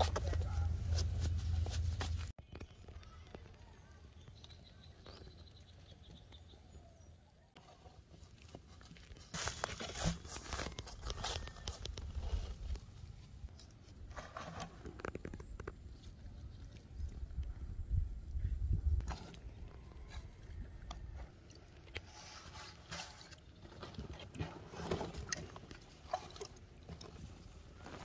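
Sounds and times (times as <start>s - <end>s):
scraping on ground: 0.0s - 2.7s, 7.6s - 17.1s, 19.0s - 28.0s
plastic sack rustling: 9.0s - 12.7s.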